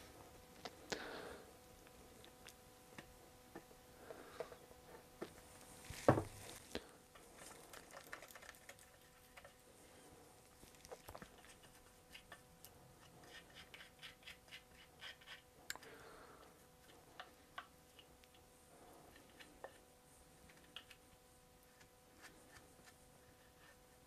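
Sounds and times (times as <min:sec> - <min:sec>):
brush scratching on wood: 0:13.0 - 0:15.5.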